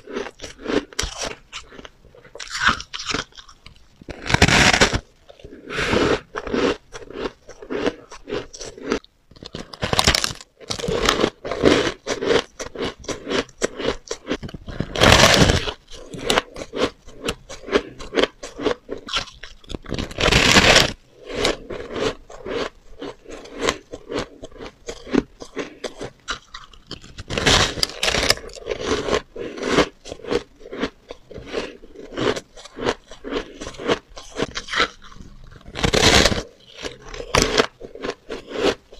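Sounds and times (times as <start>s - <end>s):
crunching shaved ice: 0.0s - 38.9s.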